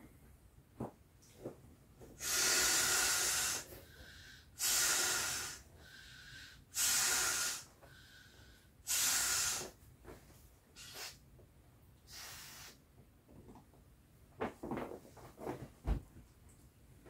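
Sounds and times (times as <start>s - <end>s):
air blown into inflatable valve: 2.2s - 8.1s, 8.8s - 9.8s, 10.8s - 11.2s, 12.1s - 12.8s.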